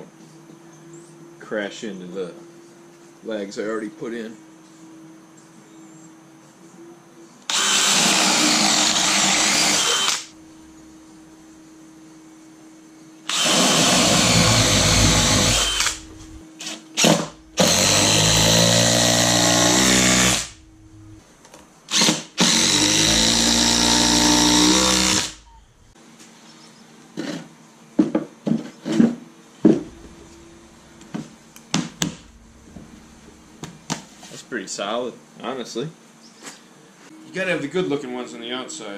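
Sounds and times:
cordless drill boring wood: 7.5s - 10.4s, 13.3s - 16.4s, 17.0s - 20.6s, 21.9s - 25.5s.

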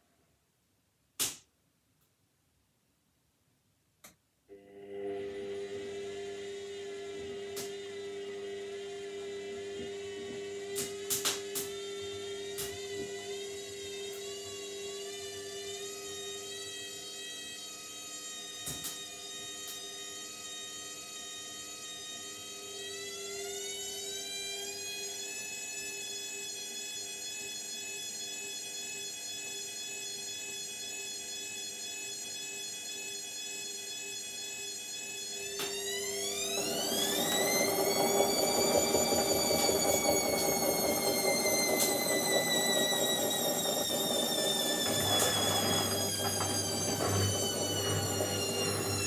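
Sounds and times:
washing machine motor whining: 33.0s - 49.0s.

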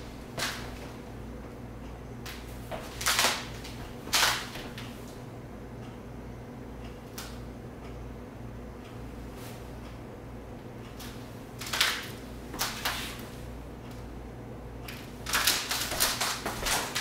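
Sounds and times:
low room hum: 0.0s - 17.0s
shuffling footsteps: 2.4s - 3.0s.

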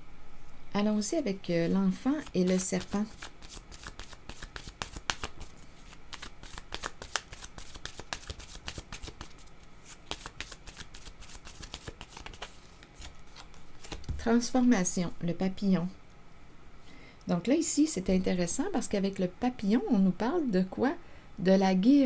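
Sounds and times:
cards being shuffled by hand: 2.0s - 14.3s.

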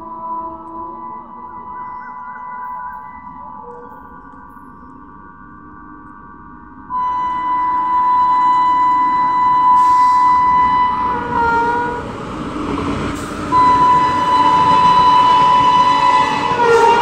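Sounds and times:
train rumbling: 6.8s - 17.0s
locomotive horn blasts: 6.9s - 12.0s, 13.5s - 17.0s.

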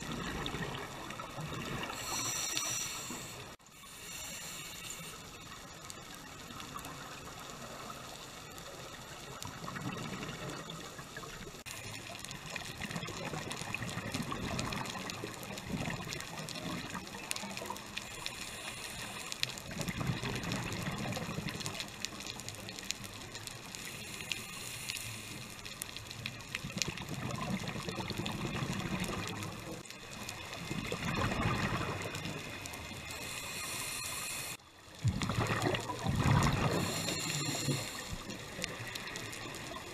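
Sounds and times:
exhaled bubbles gurgling underwater: 0.0s - 3.5s, 6.2s - 23.8s, 25.9s - 39.9s
regulator hiss: 1.8s - 5.8s, 18.0s - 19.6s, 23.7s - 25.8s, 32.8s - 34.6s, 36.6s - 38.7s.

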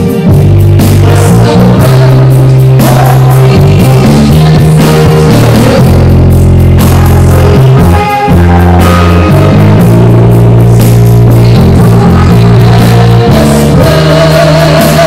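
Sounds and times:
keyboard bass chords: 0.0s - 15.0s
woman singing into a microphone: 1.0s - 15.0s.

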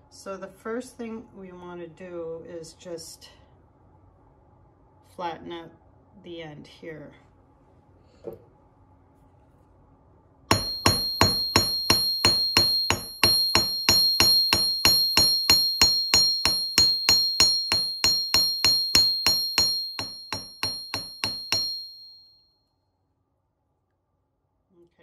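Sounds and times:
anvil ringing: 10.5s - 22.2s
hammer striking wire on anvil: 10.5s - 22.2s.

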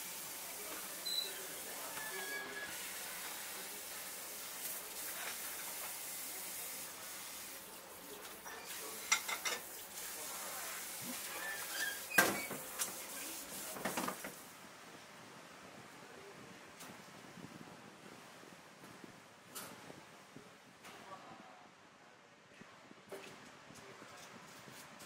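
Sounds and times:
steady hiss: 0.0s - 17.0s
kitchen knocks and clatters: 8.6s - 9.8s, 11.4s - 13.1s, 13.7s - 14.4s.

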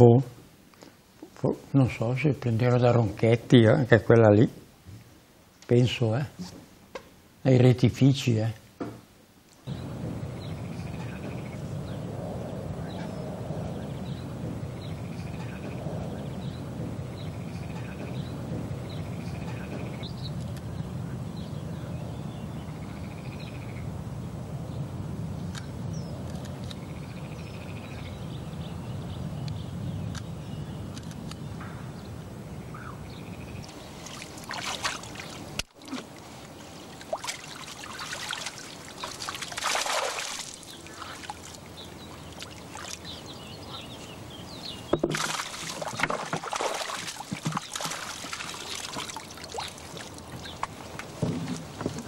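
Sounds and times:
steady low rumble: 9.7s - 33.9s
water pouring and splashing: 33.7s - 43.2s, 45.0s - 52.0s.

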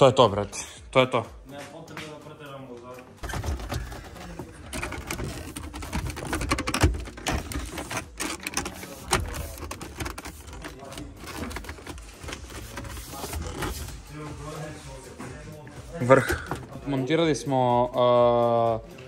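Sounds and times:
mechanical clicking and rattling: 3.2s - 13.8s.

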